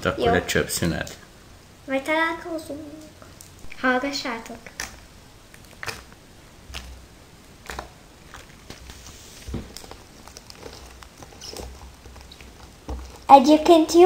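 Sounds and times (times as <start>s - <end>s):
slime squelching: 3.3s - 14.0s.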